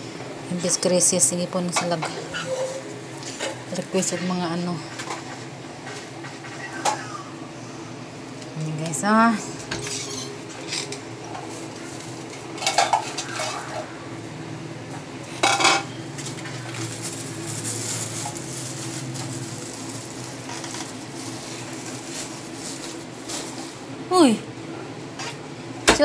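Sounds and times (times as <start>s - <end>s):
steady low hum: 0.0s - 26.0s
kitchenware clinking: 12.5s - 13.7s, 15.4s - 15.9s.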